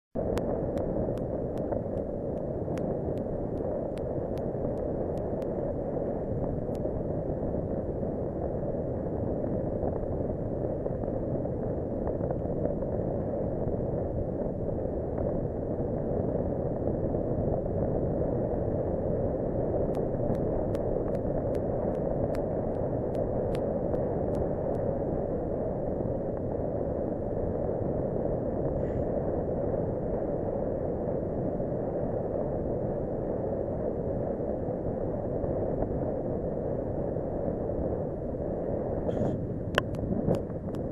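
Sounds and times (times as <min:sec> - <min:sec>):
wind buffeting microphone: 0:00.2 - 0:40.9
faint light ticks: 0:00.3 - 0:05.5, 0:06.7 - 0:06.9, 0:19.9 - 0:24.8.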